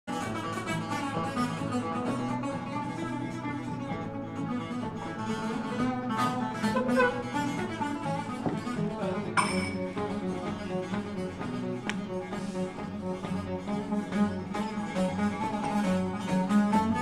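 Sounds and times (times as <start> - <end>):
bowed lyra melody: 0.1 - 17.0
lute strumming: 0.1 - 17.0.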